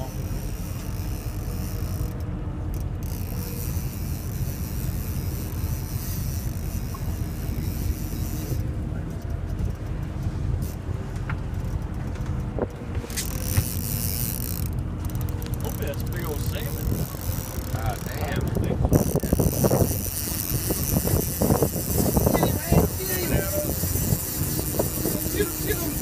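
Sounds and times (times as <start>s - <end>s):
boat engine rumbling: 0.0s - 26.0s
wind on microphone: 16.6s - 26.0s.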